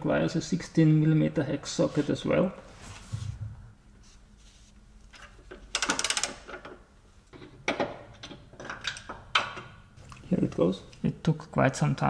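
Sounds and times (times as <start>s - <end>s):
socket ratchet clicking: 5.7s - 6.6s.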